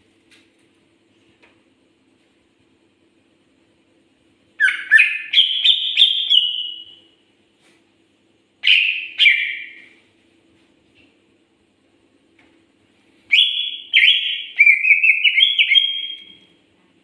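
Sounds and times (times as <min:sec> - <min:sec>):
bird singing: 0:04.6 - 0:07.1, 0:08.6 - 0:10.0, 0:13.3 - 0:16.5.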